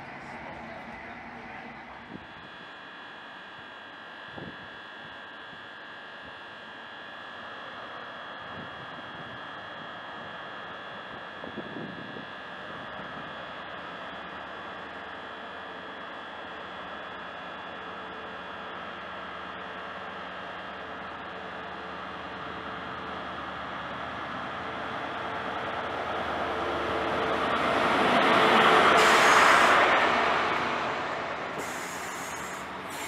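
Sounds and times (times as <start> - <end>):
train rumble: 0.0 - 2.4, 21.8 - 33.0
train engine whine: 0.0 - 33.0.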